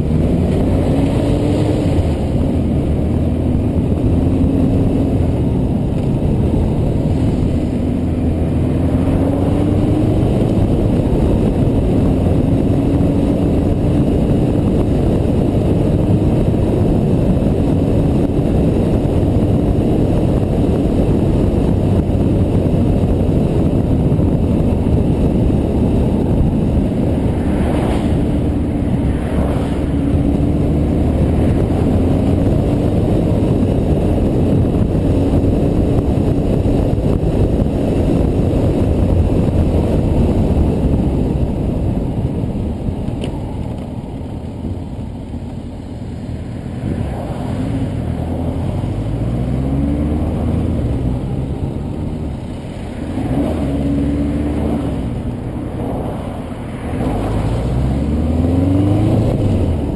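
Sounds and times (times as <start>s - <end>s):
motorcycle engine cruising: 0.0s - 59.9s
wind noise: 0.0s - 59.9s
vehicles swishing past: 26.2s - 33.0s, 43.4s - 59.9s.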